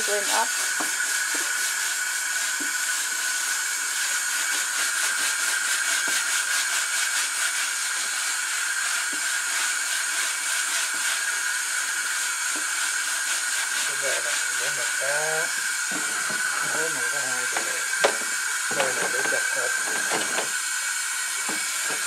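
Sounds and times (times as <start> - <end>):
hand scrubbing board: 0.0 - 22.0
tap water running into sink: 0.1 - 5.4, 15.1 - 22.0.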